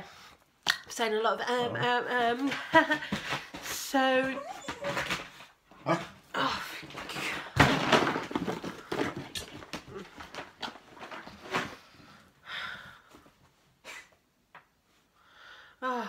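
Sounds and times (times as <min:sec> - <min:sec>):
knocks of objects handled: 0:06.9 - 0:11.8.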